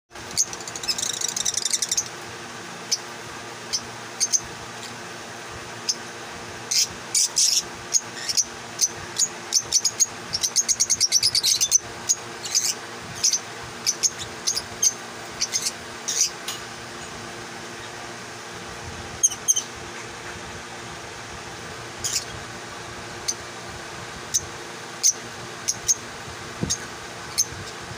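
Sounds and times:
lovebirds chirping: 0:00.2 - 0:02.2, 0:03.7 - 0:05.0, 0:06.7 - 0:16.4, 0:19.1 - 0:20.2, 0:21.9 - 0:22.5.

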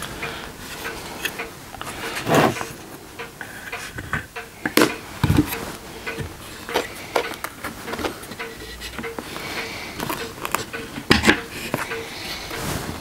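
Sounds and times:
wooden knocks and clunks: 0:04.0 - 0:06.9.

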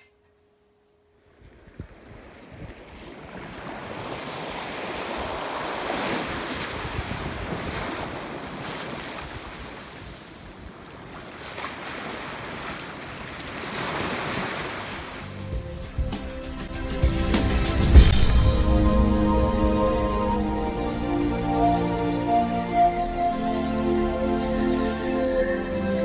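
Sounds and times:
ocean surf on beach: 0:01.1 - 0:15.4
wind buffeting microphone: 0:01.3 - 0:11.2.

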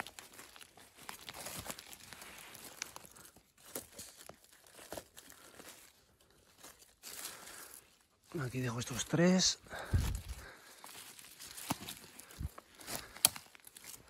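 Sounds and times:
twigs snapping: 0:00.0 - 0:08.0, 0:09.8 - 0:14.0
dry forest litter rustling: 0:00.0 - 0:14.0.

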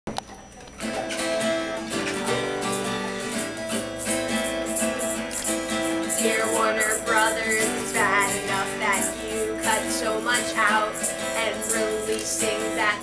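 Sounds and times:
acoustic guitar strumming: 0:00.1 - 0:13.0
woman singing: 0:06.0 - 0:13.0.

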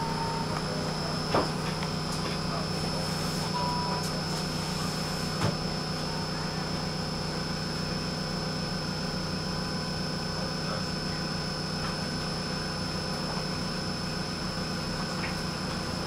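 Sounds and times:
thin high whine: 0:00.0 - 0:04.4
tram humming: 0:00.0 - 0:16.0.

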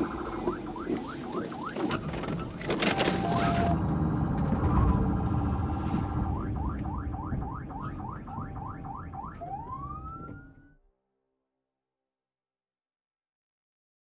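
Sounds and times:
police siren yelp and wail: 0:00.0 - 0:05.1, 0:05.7 - 0:10.8
vehicle rumble and road noise: 0:00.0 - 0:10.4.

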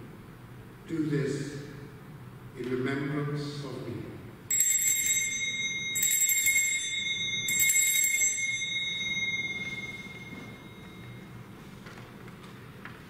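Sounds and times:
altar bell jangling: 0:04.5 - 0:11.5.

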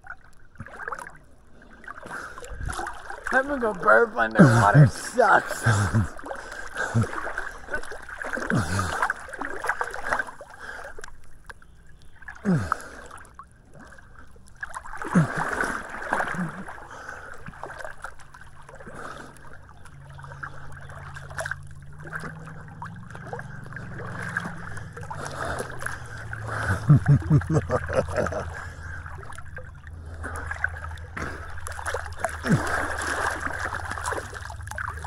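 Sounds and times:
pool water sloshing and splashing: 0:00.0 - 0:35.0
low steady hum: 0:11.1 - 0:35.0.

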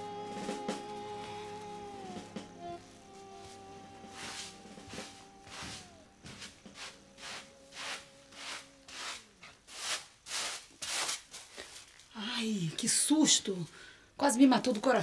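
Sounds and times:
background music held notes: 0:00.0 - 0:09.4
broom sweeping floor: 0:00.2 - 0:11.9.

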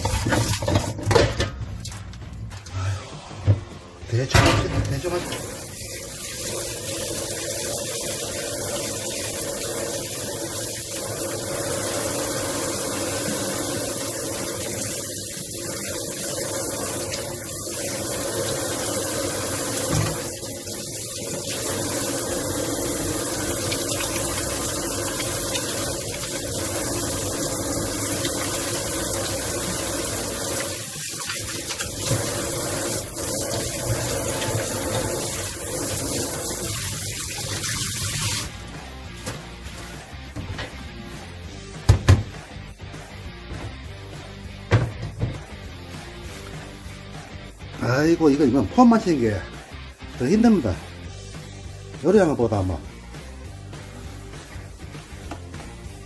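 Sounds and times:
faucet running into a steel sink: 0:04.8 - 0:38.5.

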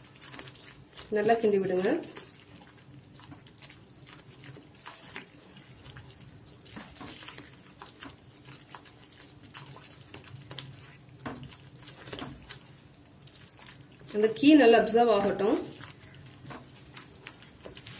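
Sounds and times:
spatula stirring thick paste in pan: 0:00.0 - 0:17.9.

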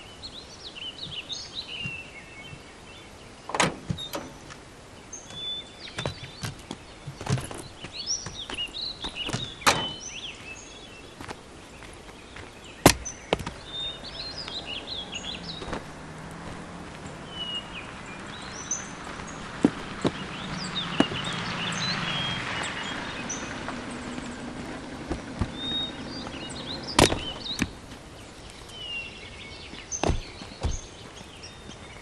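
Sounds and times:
birds chirping: 0:00.0 - 0:32.0
car approaching: 0:00.1 - 0:32.0
sharp knocks: 0:12.8 - 0:13.6, 0:27.0 - 0:27.8, 0:30.0 - 0:30.9.

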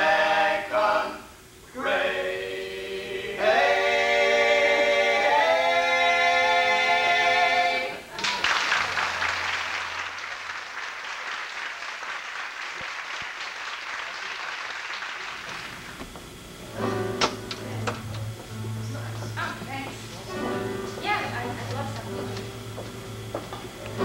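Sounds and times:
men singing in harmony: 0:00.0 - 0:08.0
music: 0:00.0 - 0:08.0, 0:16.6 - 0:24.0
audience applause: 0:08.1 - 0:16.0.

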